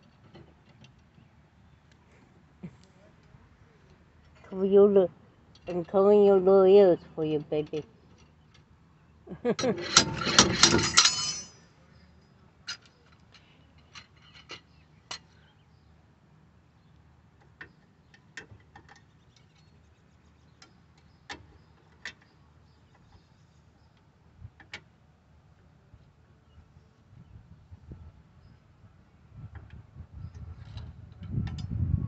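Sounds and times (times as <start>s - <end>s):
loud metal clatter: 9.6s - 11.6s.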